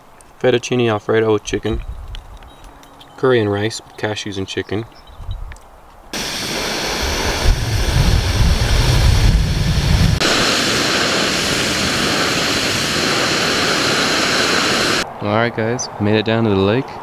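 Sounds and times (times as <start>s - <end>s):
gas stove burner hissing: 6.2s - 15.0s.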